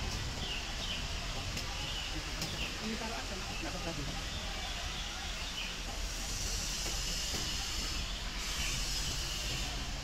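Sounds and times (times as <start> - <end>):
high hiss: 0.0 - 10.0.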